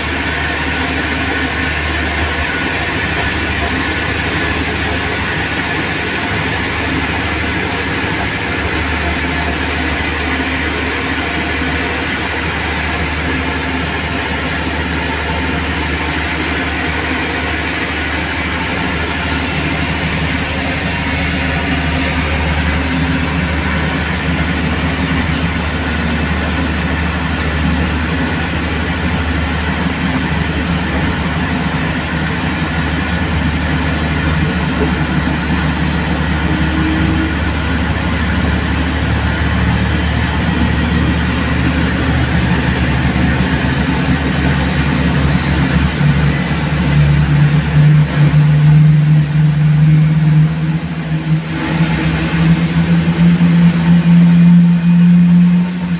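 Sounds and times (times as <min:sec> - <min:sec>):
tug engine droning under load: 0:00.0 - 0:55.9.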